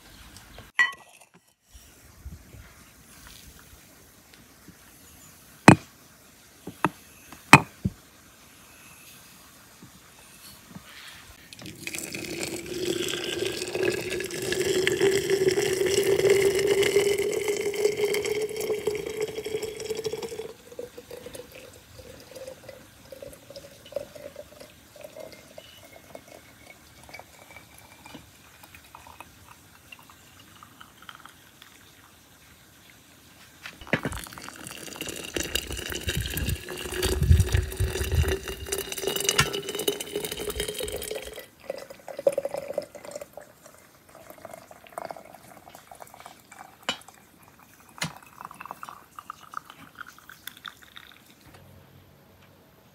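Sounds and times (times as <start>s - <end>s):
water pouring into glass jar: 11.4s - 32.1s, 33.8s - 51.5s.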